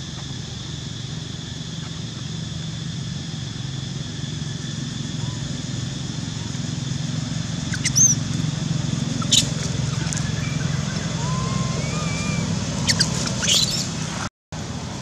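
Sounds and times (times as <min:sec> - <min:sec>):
low engine-like rumble: 0:00.0 - 0:15.0
faint wavering whistles: 0:07.6 - 0:08.3, 0:09.1 - 0:13.9
high squeaks: 0:09.2 - 0:13.9.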